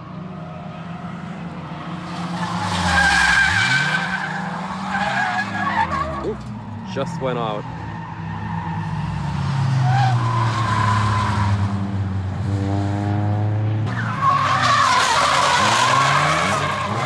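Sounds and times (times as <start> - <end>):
car engines revving hard: 0.0 - 17.0
tyres squealing: 14.0 - 17.0.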